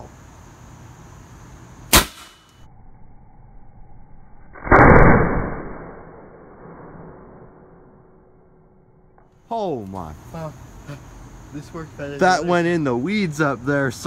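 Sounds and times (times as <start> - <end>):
sharp crack: 1.9 - 2.6, 4.6 - 8.0.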